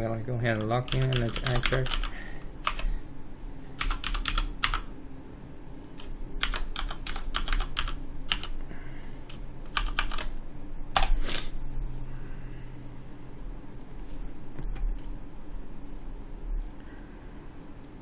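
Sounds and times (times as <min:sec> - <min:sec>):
faint low hum: 0:00.0 - 0:18.0
typing on keyboard: 0:00.5 - 0:02.9, 0:03.8 - 0:04.9, 0:06.0 - 0:08.6, 0:09.3 - 0:10.3.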